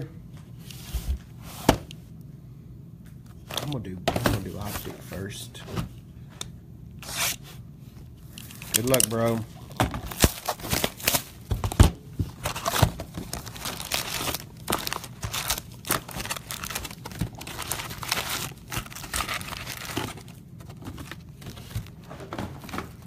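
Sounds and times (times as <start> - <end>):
plastic wrap and foil crinkling: 8.4 - 23.0.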